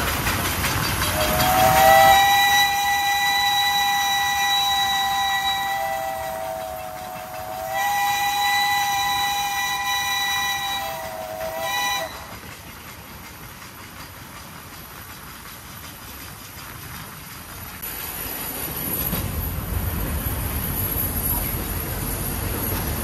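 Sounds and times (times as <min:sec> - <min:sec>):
train running on rails: 0:00.0 - 0:23.0
steam locomotive chime whistle: 0:00.9 - 0:12.4.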